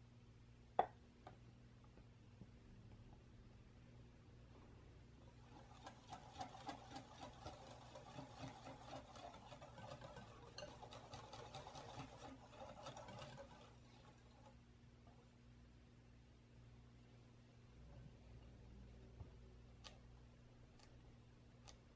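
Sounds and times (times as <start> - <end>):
whisk beating batter in glass bowl: 5.4 - 14.6.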